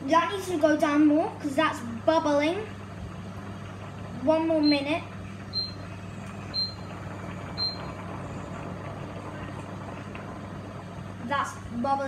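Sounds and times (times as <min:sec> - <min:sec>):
steady low hum: 0:00.0 - 0:12.0
cooker hob beeping: 0:04.5 - 0:10.7.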